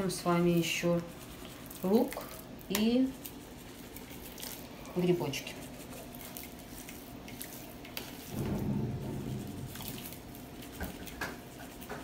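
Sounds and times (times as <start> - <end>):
hands squishing raw meat: 0.0 - 12.0
low rumble: 8.3 - 10.7.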